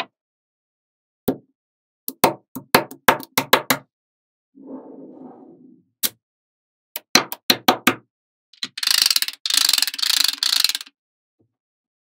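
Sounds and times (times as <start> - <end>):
magnetic balls clicking: 8.6 - 10.9.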